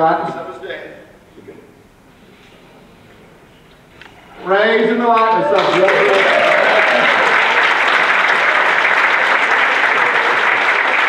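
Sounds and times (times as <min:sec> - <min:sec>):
congregation applauding: 0:04.8 - 0:11.0.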